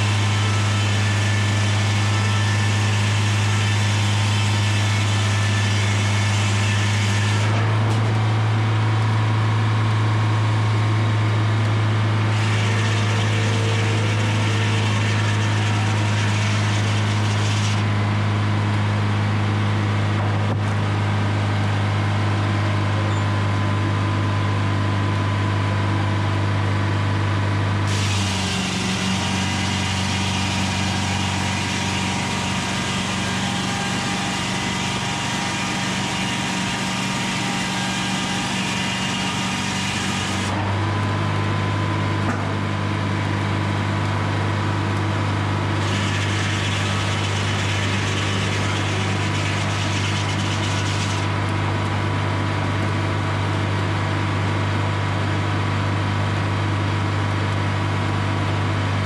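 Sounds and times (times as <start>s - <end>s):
circular saw cutting log: 0.0s - 20.6s, 27.8s - 40.8s, 45.2s - 52.2s
diesel engine running: 7.6s - 14.8s, 17.8s - 29.8s, 40.5s - 59.0s.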